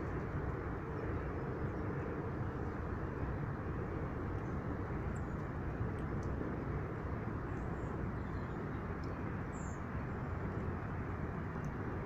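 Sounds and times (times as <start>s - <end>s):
low rumbling background noise: 0.0s - 12.0s.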